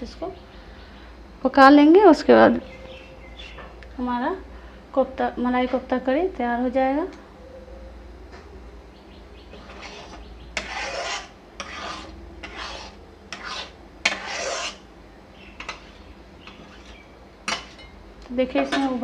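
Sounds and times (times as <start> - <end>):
spatula scraping metal pan: 9.5 - 14.9, 15.5 - 18.0.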